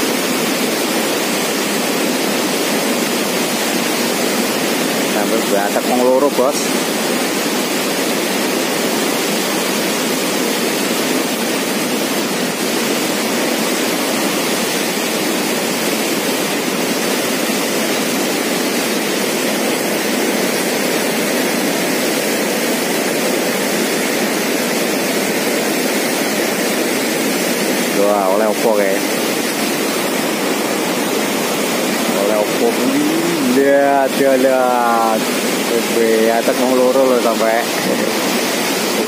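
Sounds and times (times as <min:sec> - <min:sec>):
floodwater rushing: 0:00.0 - 0:39.0.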